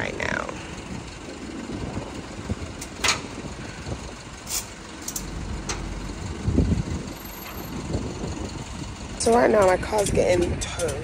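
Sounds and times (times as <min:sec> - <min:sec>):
low rumble: 0:00.0 - 0:11.0
truck engine running: 0:00.0 - 0:11.0
metal clanks and knocks: 0:02.8 - 0:03.3, 0:04.6 - 0:11.0.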